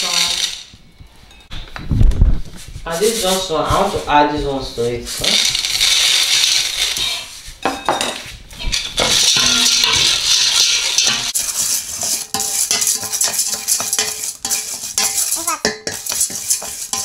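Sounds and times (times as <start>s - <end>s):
popcorn kernels rattling in a pot: 0.0s - 0.7s, 5.2s - 7.3s, 8.6s - 17.0s
wooden spoon stirring: 2.6s - 17.0s.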